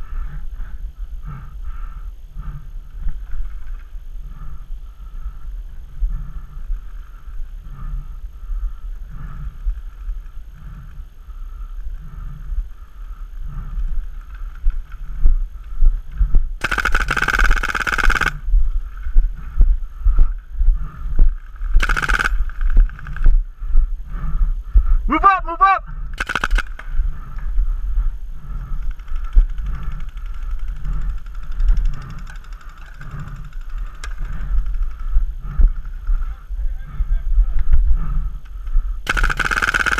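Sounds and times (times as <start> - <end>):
wind rumble: 0.0 - 25.1, 25.8 - 39.9
paintball marker rapid shots: 16.6 - 18.4, 21.7 - 23.3, 26.1 - 27.4, 39.1 - 39.9.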